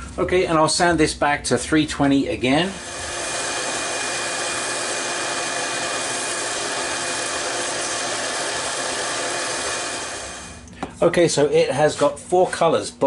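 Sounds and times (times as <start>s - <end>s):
wood lathe running: 2.7s - 10.6s
sanding hiss: 2.8s - 10.6s.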